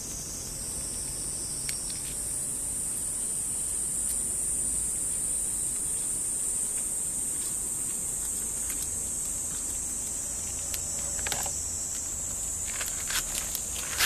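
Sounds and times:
high-pitched insect drone: 9.0 - 14.0.

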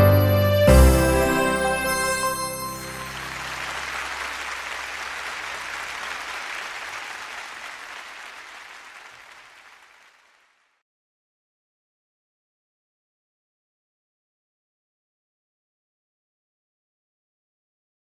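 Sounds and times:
music: 0.0 - 4.3
audience applause: 1.1 - 10.7.

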